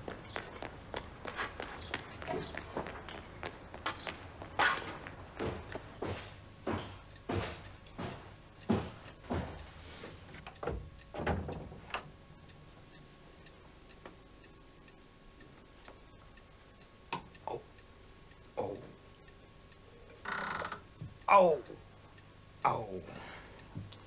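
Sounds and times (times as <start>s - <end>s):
footsteps on wooden floorboards: 0.0s - 11.8s
faint ticking: 0.0s - 24.0s.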